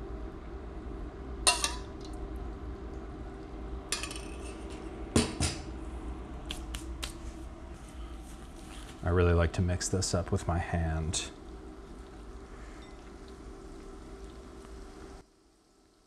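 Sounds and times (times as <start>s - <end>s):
low background hum: 0.0s - 16.0s
dishes clinking against bowl: 1.5s - 1.9s.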